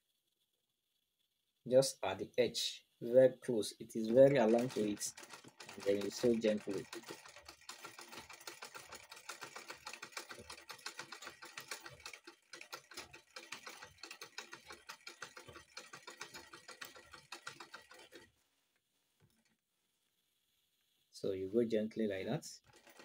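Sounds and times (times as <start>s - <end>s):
sewing machine clicking: 4.0s - 18.3s, 22.6s - 23.0s.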